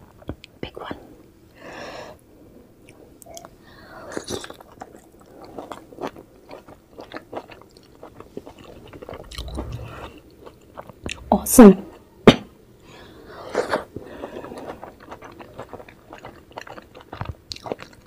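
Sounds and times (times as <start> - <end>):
person chewing with lip smacks: 4.4 - 10.1.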